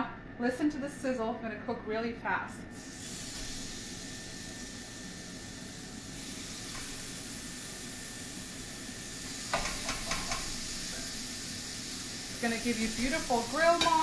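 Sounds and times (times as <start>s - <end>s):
chicken sizzling on grill pan: 2.8s - 14.0s.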